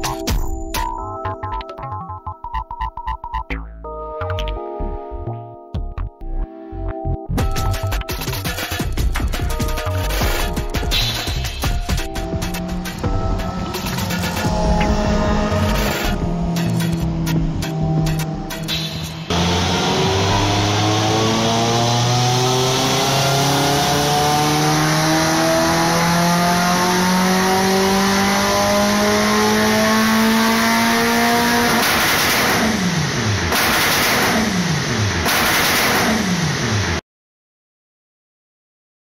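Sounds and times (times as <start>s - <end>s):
race car engine revving: 12.1s - 37.0s.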